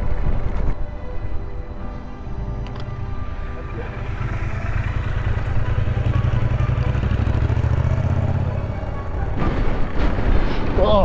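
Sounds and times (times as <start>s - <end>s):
motorcycle engine running: 3.0s - 9.4s.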